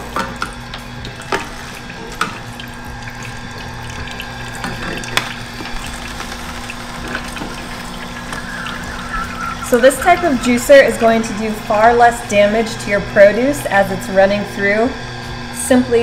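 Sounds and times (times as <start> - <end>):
root cracking in juicer: 0.0 - 9.6
juicer motor hum: 0.0 - 16.0.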